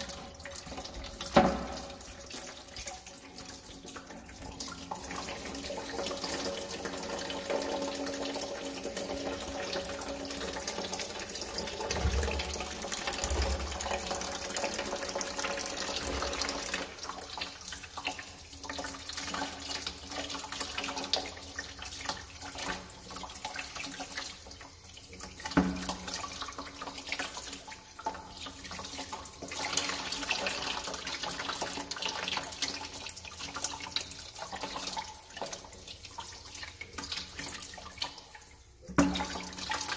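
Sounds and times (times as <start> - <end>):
water splashing into plastic bucket: 0.0 - 8.2, 8.9 - 17.2, 25.2 - 35.6, 36.2 - 39.9.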